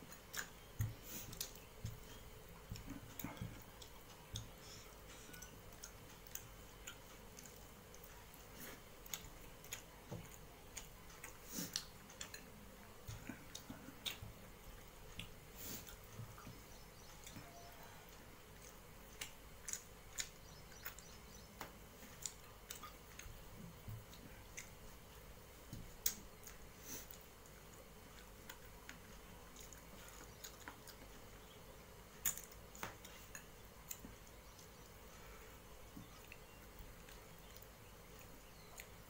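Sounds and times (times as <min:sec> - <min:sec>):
chewing smacks: 0:18.1 - 0:25.3.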